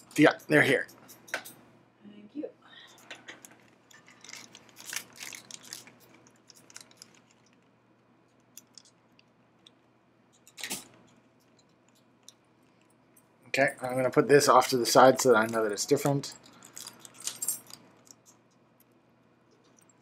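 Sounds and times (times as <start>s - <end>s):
plastic bag crinkling: 3.4s - 7.8s, 14.9s - 18.2s.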